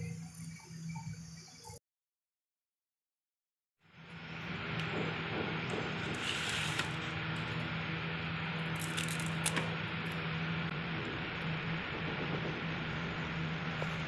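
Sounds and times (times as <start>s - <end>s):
low hum and hiss: 3.8s - 14.0s
masking tape crinkling: 8.6s - 10.2s.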